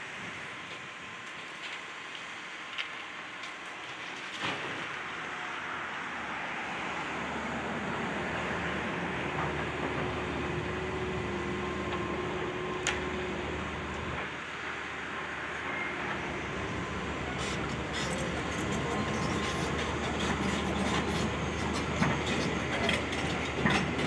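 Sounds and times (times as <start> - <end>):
excavator diesel engine running: 7.6 - 24.0.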